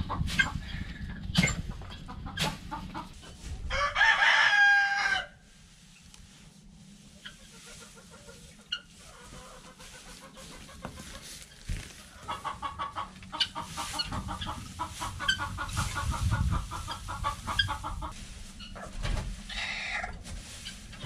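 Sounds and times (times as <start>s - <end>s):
hens clucking: 0.0s - 5.3s, 6.0s - 21.0s
straw rustling being pitchforked: 5.7s - 21.0s.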